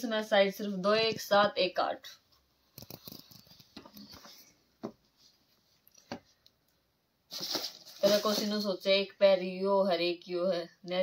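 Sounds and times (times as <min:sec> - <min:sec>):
fabric rustling and handling: 0:07.3 - 0:08.7.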